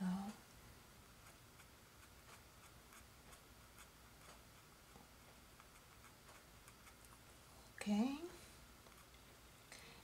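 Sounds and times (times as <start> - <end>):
paintbrush dabbing on canvas: 1.0 - 7.3.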